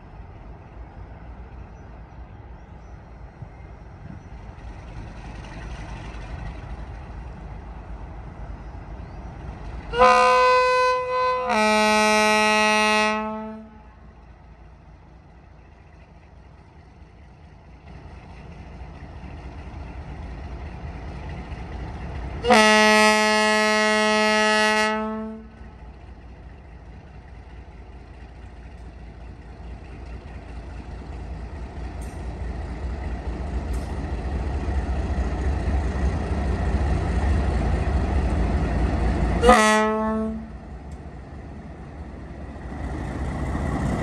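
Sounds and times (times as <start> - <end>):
diesel engine running: 0.0 - 10.0
locomotive air horn blasts: 9.9 - 14.0, 22.4 - 25.7, 39.4 - 40.6.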